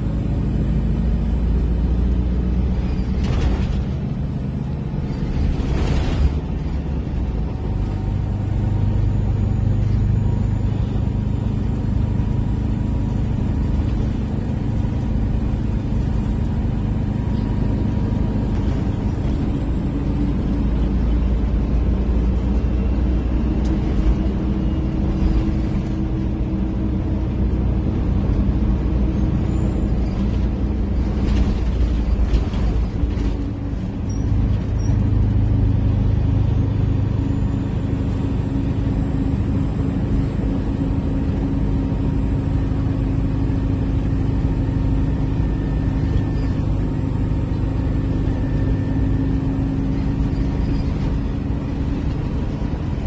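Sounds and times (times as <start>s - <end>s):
bus engine droning: 0.0s - 53.0s.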